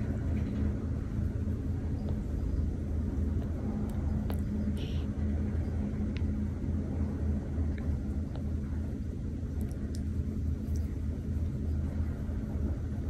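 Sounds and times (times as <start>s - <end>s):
kitten purring: 0.0s - 5.6s
handling ticks: 1.9s - 2.7s, 3.3s - 5.1s
soft rustle: 9.5s - 13.0s.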